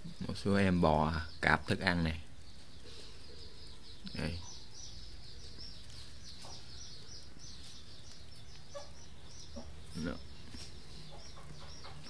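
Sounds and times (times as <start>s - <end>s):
high-pitched chirping: 2.5s - 12.0s.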